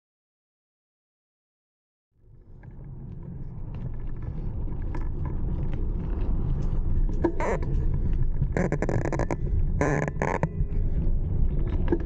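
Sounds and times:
rumble of wind and tyres: 2.2 - 12.0.

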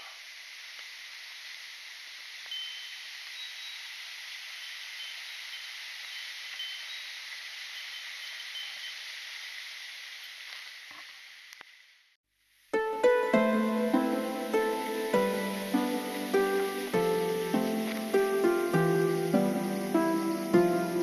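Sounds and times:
waterfall hissing: 0.0 - 11.5, 12.7 - 21.0
rain: 0.0 - 21.0
faint high tinkling notes: 2.5 - 3.9, 4.6 - 9.0.

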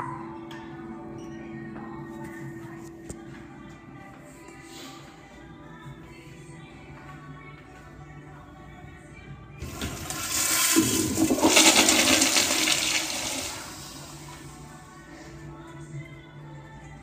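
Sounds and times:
toilet flushing: 9.6 - 14.6.

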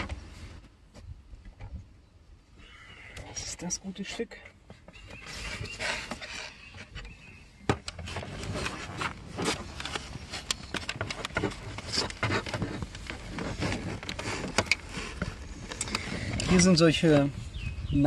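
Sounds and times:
plastic rubbing and scraping: 4.0 - 17.4
plastic clicks and knocks: 9.5 - 16.1.

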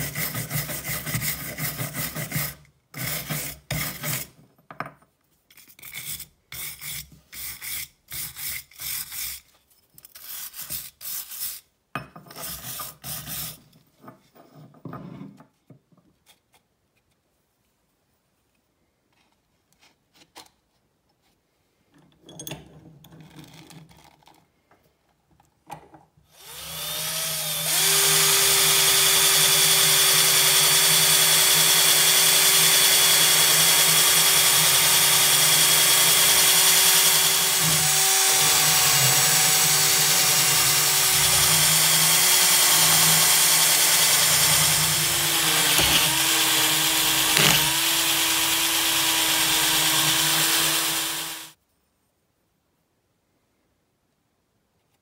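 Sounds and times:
electric drill running: 26.4 - 51.6.

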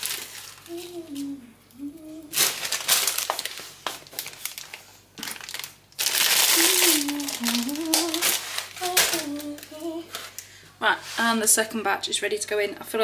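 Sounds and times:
plastic packet crackling: 0.0 - 1.4, 2.3 - 10.4
woman humming: 0.7 - 2.4, 6.5 - 10.2.

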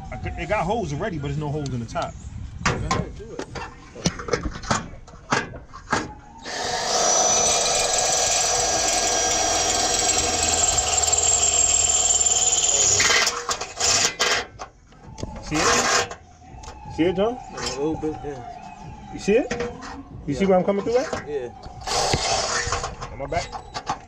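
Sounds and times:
power drill drilling metal: 6.4 - 14.3.

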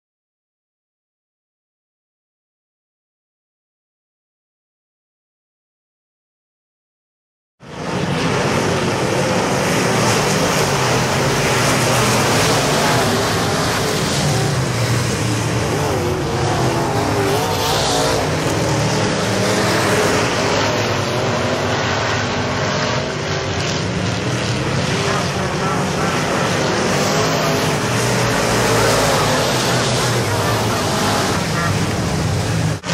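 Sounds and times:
race car engines droning: 7.6 - 32.9.

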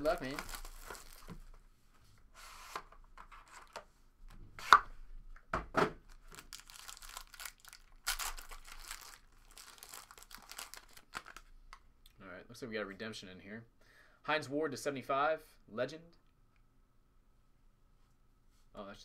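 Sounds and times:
foil wrappers crinkling and tearing: 0.0 - 1.4, 6.1 - 11.5.

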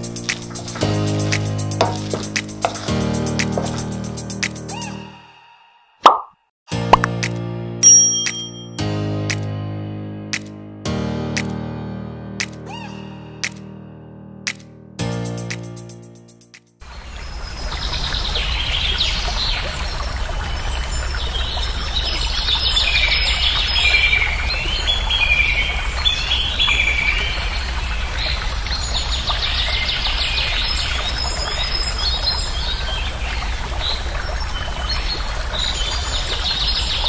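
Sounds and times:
running water: 0.0 - 4.6, 16.8 - 37.0.

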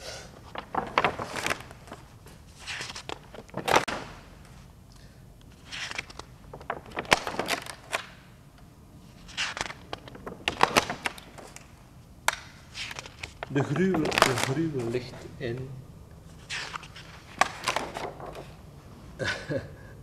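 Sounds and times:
paper rustling and knocks: 0.4 - 4.6, 5.5 - 8.2, 9.1 - 15.3, 16.4 - 18.6.

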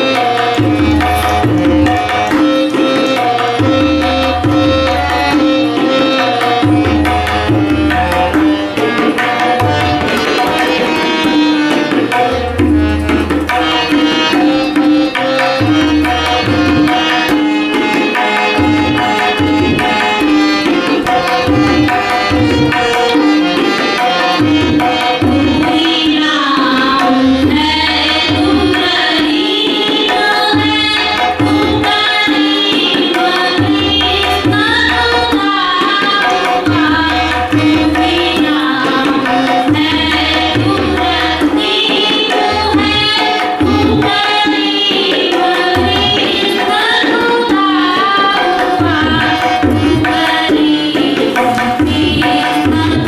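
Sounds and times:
harmonium drone: 0.0 - 53.0
tabla: 0.0 - 53.0
woman singing: 13.5 - 53.0.

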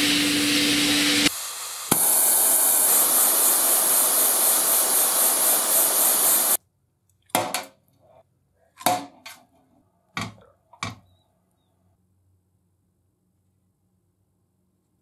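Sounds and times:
gas torch flame hissing: 0.0 - 6.6
hot metal sizzling in oil: 0.0 - 6.6.

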